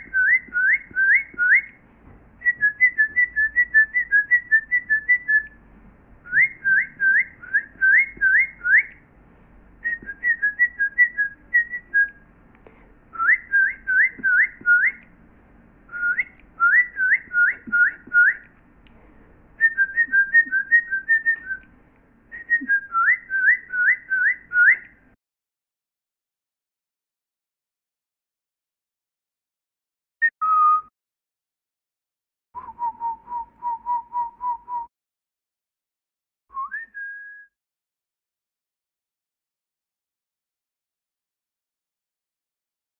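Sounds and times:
artificial birdsong whistles: 0.0s - 1.8s, 2.4s - 5.6s, 6.3s - 9.0s, 9.8s - 12.2s, 13.1s - 15.0s, 15.9s - 18.5s, 19.6s - 21.7s, 22.3s - 25.0s, 30.2s - 30.9s, 32.6s - 34.9s, 36.5s - 37.6s.

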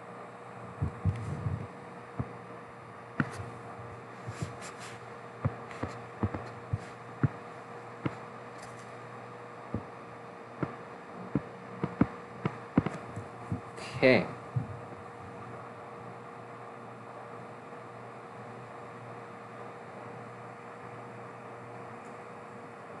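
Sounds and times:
steady electrical hum: 0.0s - 23.0s
stylus tapping on drawing tablet: 3.2s - 3.4s, 5.5s - 7.4s, 11.8s - 12.1s, 12.8s - 13.0s.

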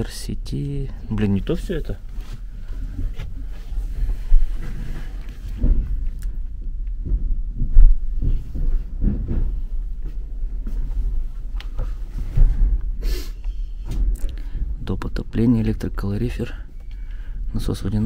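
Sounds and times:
short rustle: 1.6s - 6.1s
dull low thumps: 2.0s - 13.0s
low rumble: 2.4s - 18.0s.

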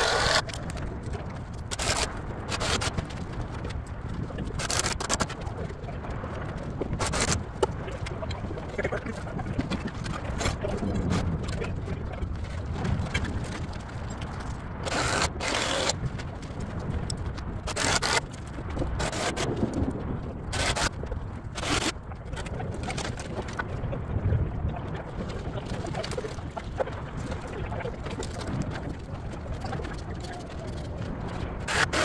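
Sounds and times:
wind rumble on microphone: 0.0s - 32.0s.

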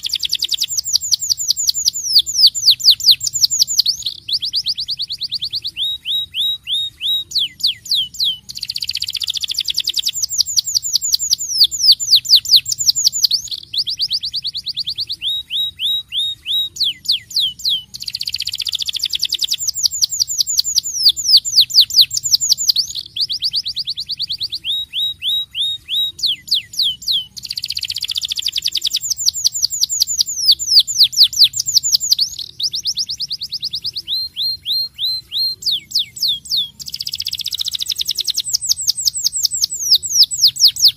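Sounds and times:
canary singing trills: 0.0s - 40.9s.

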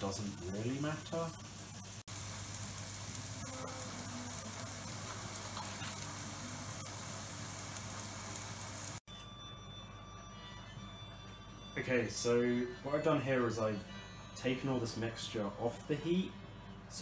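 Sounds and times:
vegetables sizzling in a frying pan: 0.0s - 9.0s.

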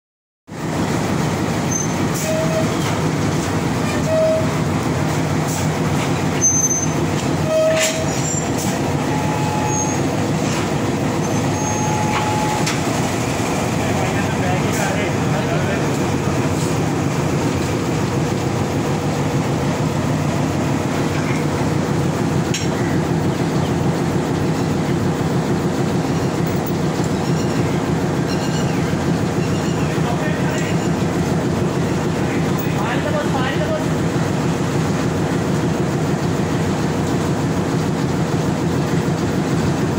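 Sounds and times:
diesel locomotive idling: 0.5s - 39.9s
coupling gear squeaks: 1.7s - 3.0s, 6.3s - 10.1s, 11.2s - 12.8s, 26.2s - 31.0s.

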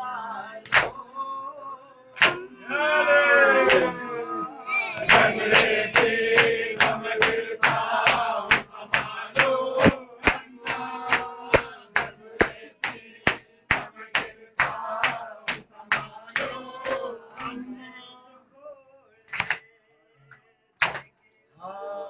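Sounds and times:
men chanting together: 0.0s - 1.6s, 2.2s - 18.5s
hand slaps on chest: 2.2s - 2.4s, 5.1s - 17.0s, 19.3s - 19.6s, 20.8s - 21.1s.

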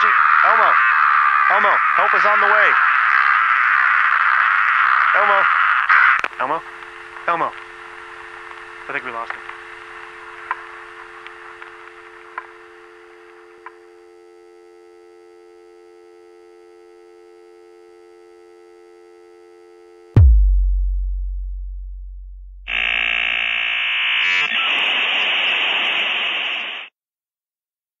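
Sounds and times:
loud electronic buzz: 5.1s - 25.1s
telephone dial tone: 6.2s - 20.1s
deep boom: 20.2s - 23.1s.

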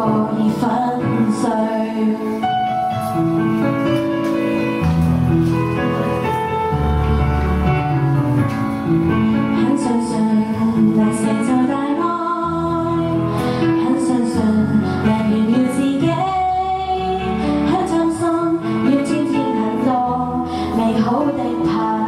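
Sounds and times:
woman singing a pop song: 0.0s - 2.7s, 9.6s - 22.0s
backing music: 0.0s - 22.0s.

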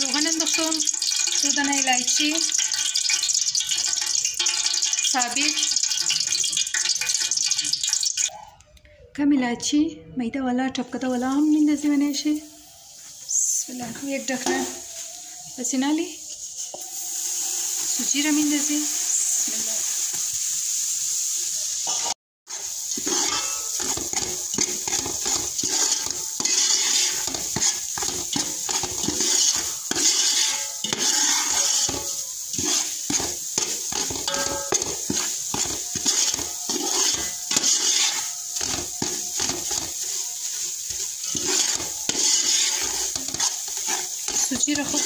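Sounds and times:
semolina sizzling in hot oil: 0.0s - 8.3s, 10.9s - 45.0s
metal spoon scraping pot: 22.5s - 45.0s.

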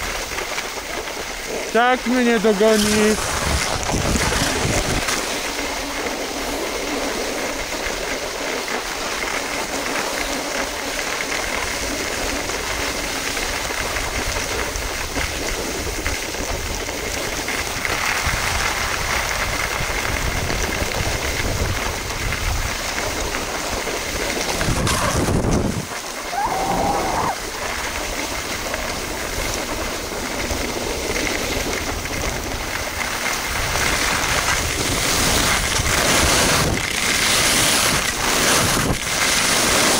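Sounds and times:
skis scraping over snow: 0.0s - 39.9s.

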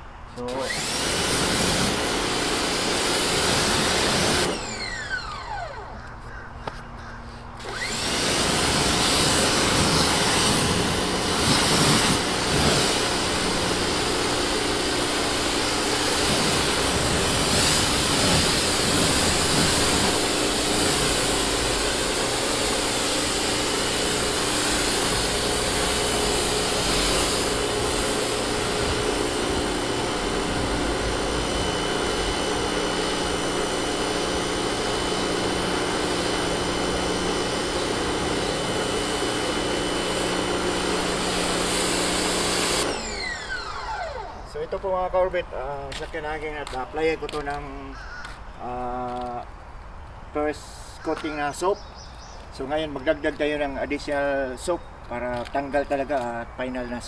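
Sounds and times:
pressure washer spraying water: 0.5s - 5.1s, 7.6s - 44.4s
motor winding down whine: 3.7s - 6.2s, 7.6s - 44.9s.

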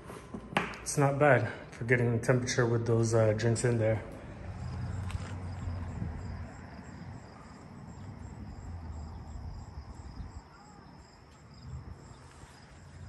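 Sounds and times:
crickets chirping: 3.0s - 13.0s.

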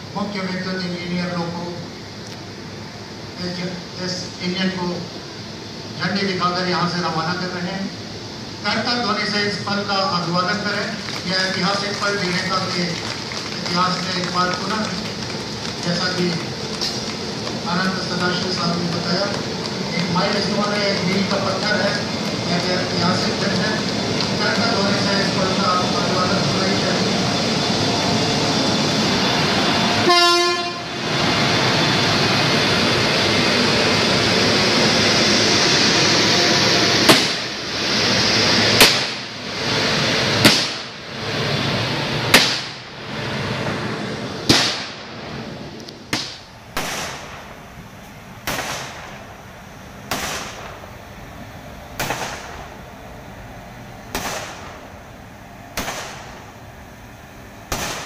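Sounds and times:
firecrackers banging: 8.8s - 53.3s, 53.9s - 57.0s, 57.6s - 58.0s
crowd applause: 10.5s - 26.2s
electric locomotive horn: 29.8s - 31.0s.

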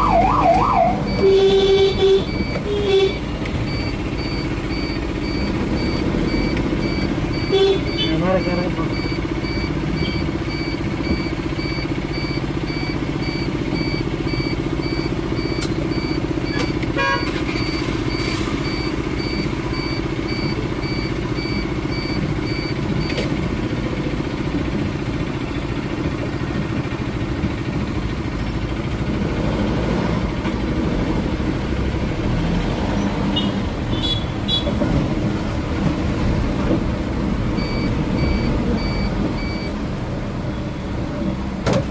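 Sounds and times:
engine and road rumble: 0.0s - 41.9s
car horn toots: 0.2s - 3.3s, 7.4s - 8.3s, 16.5s - 17.5s, 33.4s - 34.8s
electronic beep: 2.2s - 16.8s, 37.6s - 39.8s.

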